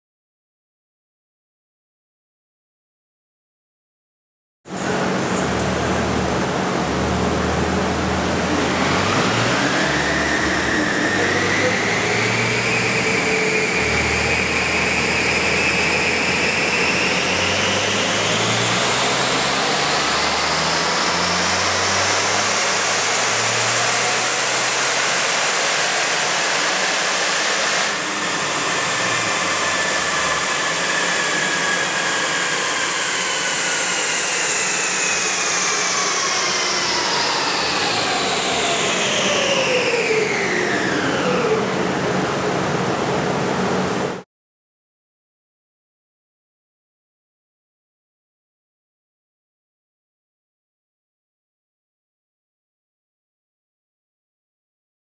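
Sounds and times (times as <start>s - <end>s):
cooling fan rush: 4.7s - 44.2s
engine whine rising in pitch: 4.7s - 44.3s.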